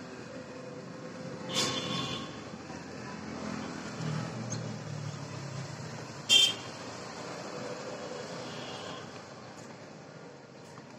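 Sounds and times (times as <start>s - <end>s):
street background noise: 0.0s - 10.9s
car horn toot: 6.3s - 6.7s.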